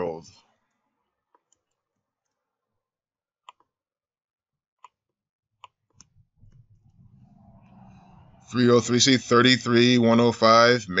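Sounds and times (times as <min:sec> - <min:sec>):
computer mouse and keyboard clicks: 0:03.4 - 0:03.7.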